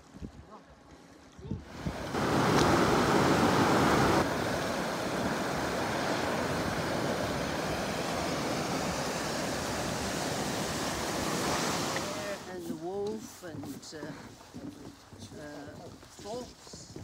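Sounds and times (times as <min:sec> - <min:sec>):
river rushing over boulders: 0:01.6 - 0:12.6.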